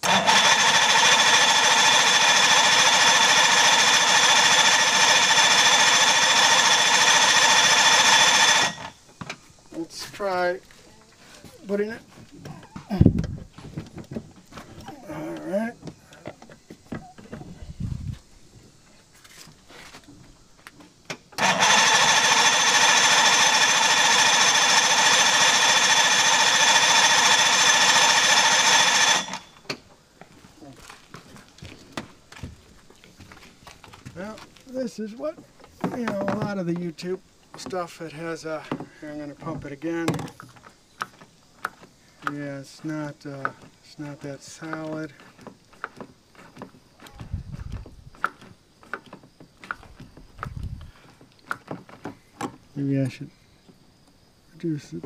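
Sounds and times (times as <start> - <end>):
electric starter cranking engine: 0.0 - 9.0, 21.1 - 29.8.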